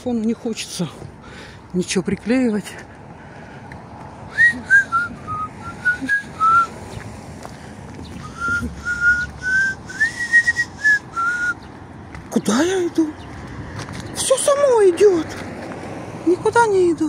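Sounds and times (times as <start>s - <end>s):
person whistling a melody: 4.3s - 6.7s, 8.2s - 11.6s.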